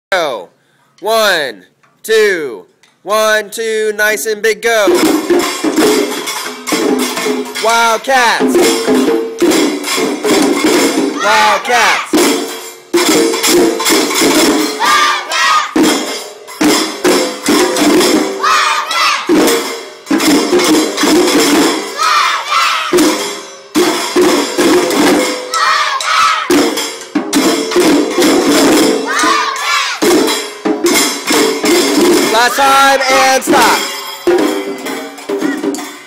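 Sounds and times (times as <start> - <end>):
children striking hand cymbals: 4.9 - 36.0
children shouting: 10.4 - 12.3, 14.4 - 16.0, 17.3 - 19.7, 21.6 - 23.3, 25.2 - 26.8, 28.7 - 30.5, 35.3 - 36.0.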